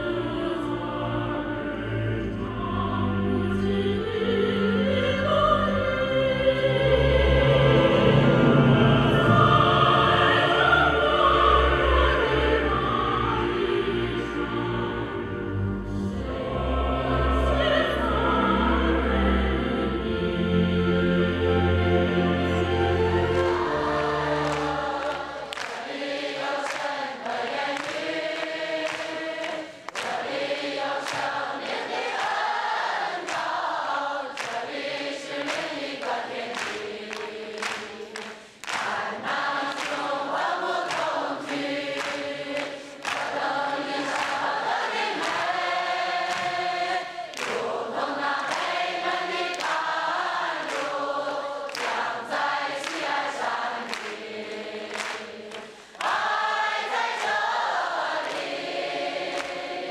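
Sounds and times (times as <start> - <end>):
congregation singing a hymn: 0.0 - 59.9
handclaps on the beat: 23.3 - 59.9.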